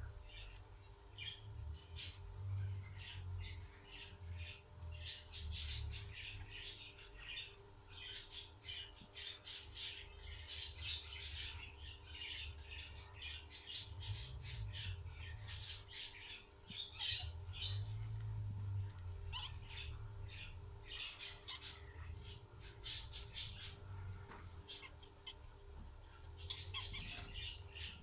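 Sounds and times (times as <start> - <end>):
guinea pigs squeaking: 0.0 - 28.0
steady low hum: 0.0 - 28.0.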